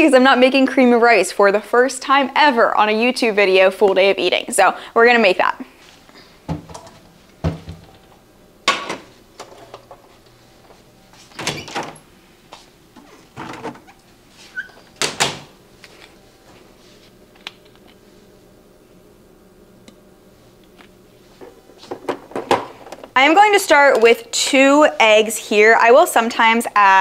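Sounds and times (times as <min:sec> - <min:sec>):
refrigerator door opening and closing: 0:06.5 - 0:08.1, 0:11.3 - 0:12.1, 0:13.0 - 0:15.6.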